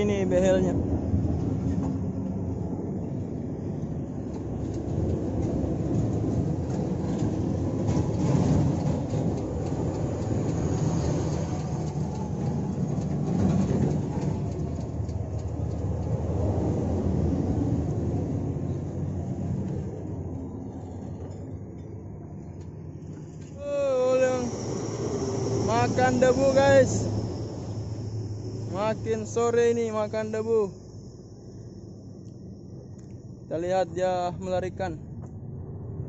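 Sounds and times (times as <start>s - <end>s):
diesel trucks rumbling: 22.8s - 31.3s.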